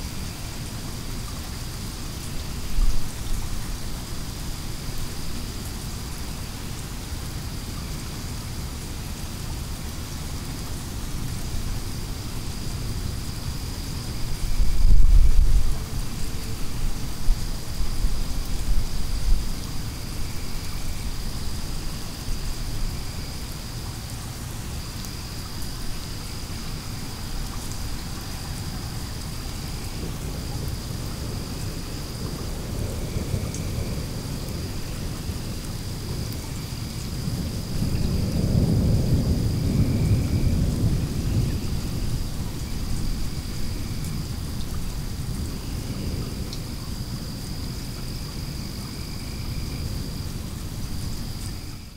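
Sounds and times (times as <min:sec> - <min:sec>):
steady rain: 0:00.0 - 0:51.9
thunder rumbling: 0:37.2 - 0:46.8.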